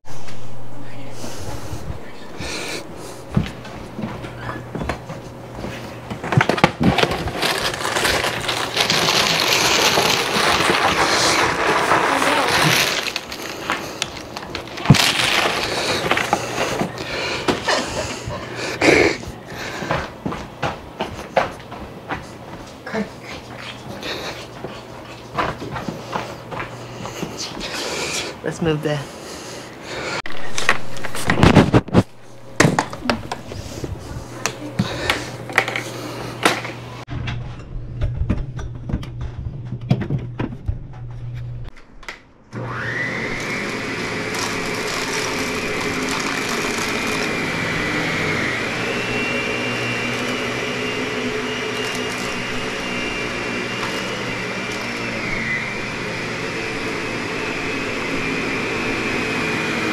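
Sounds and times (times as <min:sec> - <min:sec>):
low hum: 0:00.0 - 0:18.5, 0:30.3 - 0:42.8
vacuum cleaner motor whining: 0:00.0 - 0:37.1, 0:42.5 - 0:59.9.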